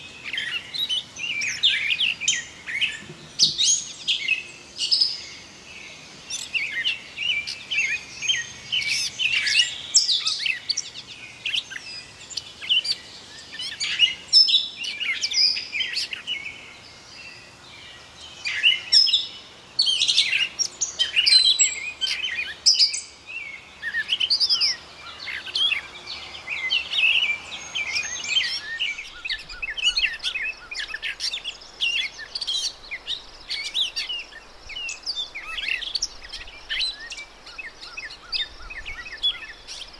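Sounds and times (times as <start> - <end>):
catbird singing: 19.9 - 39.9.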